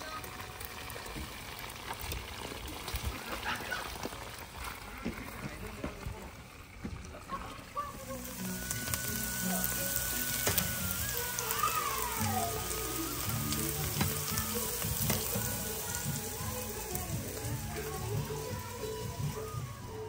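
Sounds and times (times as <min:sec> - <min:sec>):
oil sizzling in a frying pan: 0:00.0 - 0:20.0
background music: 0:07.9 - 0:20.0.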